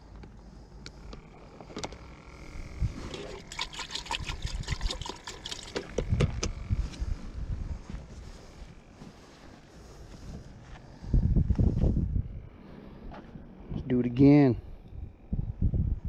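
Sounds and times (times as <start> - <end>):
water sloshing in plastic bucket: 3.0 - 6.3.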